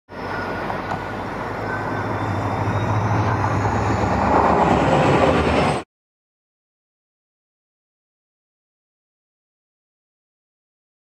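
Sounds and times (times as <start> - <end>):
train wheels on rails: 0.1 - 5.8
diesel locomotive engine: 0.1 - 5.9.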